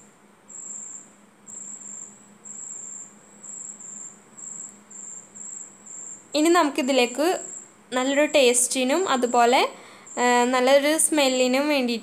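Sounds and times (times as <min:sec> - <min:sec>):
cricket chirping: 0:00.5 - 0:06.5, 0:07.4 - 0:07.8, 0:09.8 - 0:10.7.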